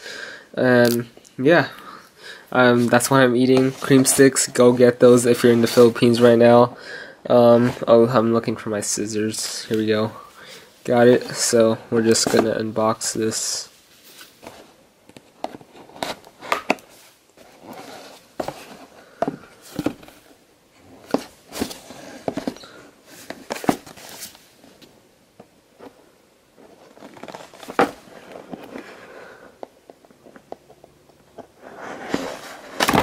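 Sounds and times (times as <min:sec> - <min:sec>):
cardboard scraping and rustling: 0:11.1 - 0:12.7, 0:14.0 - 0:20.3, 0:20.9 - 0:24.5, 0:26.6 - 0:29.0, 0:31.3 - 0:33.0.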